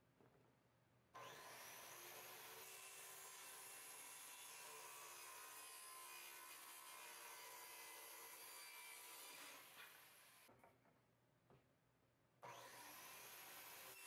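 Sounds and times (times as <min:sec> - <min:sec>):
circular saw cutting wood: 0:01.2 - 0:10.5, 0:12.4 - 0:14.0.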